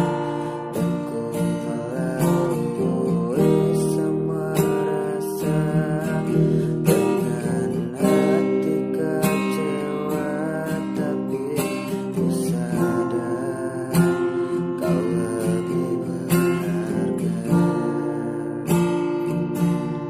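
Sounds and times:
acoustic guitar strummed: 0.0s - 20.0s.

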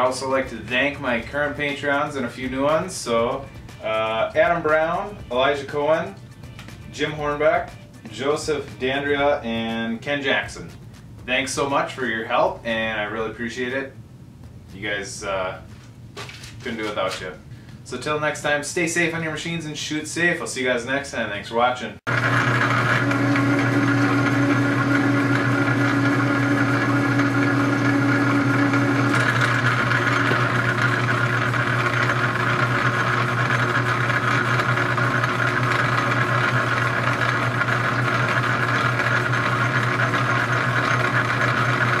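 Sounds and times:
metal lathe humming: 22.1s - 42.0s.

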